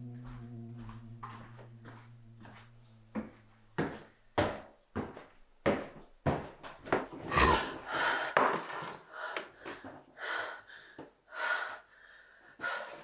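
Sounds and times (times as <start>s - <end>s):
woman breathing heavily: 7.2s - 13.0s.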